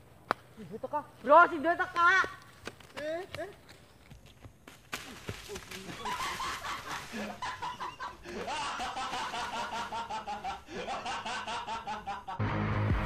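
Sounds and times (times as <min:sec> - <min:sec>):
music: 0:12.4 - 0:13.0.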